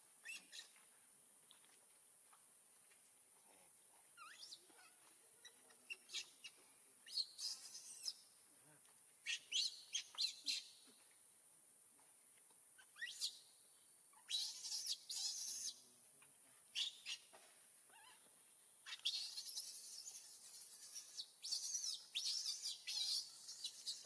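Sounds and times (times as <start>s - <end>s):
high-pitched chirping calls: 0.2s - 0.8s, 5.4s - 8.3s, 9.2s - 10.9s, 12.8s - 13.5s, 14.2s - 15.8s, 16.8s - 17.3s, 18.8s - 24.0s.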